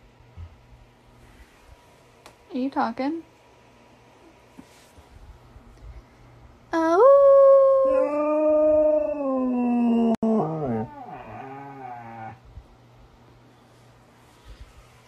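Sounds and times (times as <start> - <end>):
dog howling: 7.0 - 12.4.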